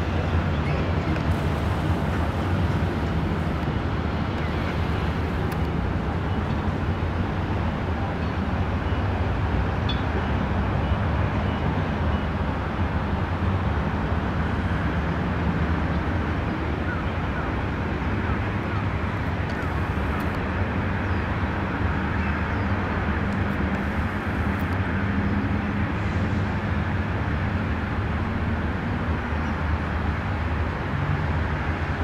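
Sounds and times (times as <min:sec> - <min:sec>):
distant road traffic rumble: 0:00.0 - 0:08.5, 0:15.8 - 0:32.0.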